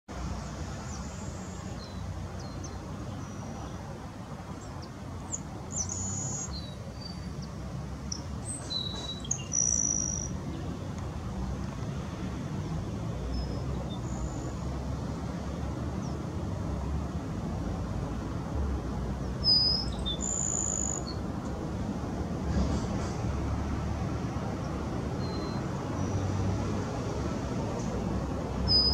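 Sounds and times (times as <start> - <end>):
birds chirping: 0.4 - 11.8, 19.2 - 21.3, 28.5 - 28.9.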